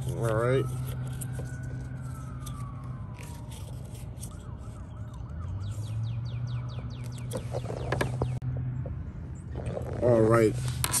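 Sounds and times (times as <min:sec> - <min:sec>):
siren: 0:00.0 - 0:08.2.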